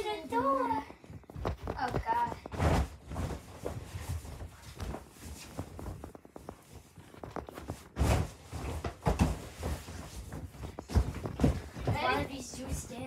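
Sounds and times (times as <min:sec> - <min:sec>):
thumps on an air mattress: 0:01.1 - 0:12.3.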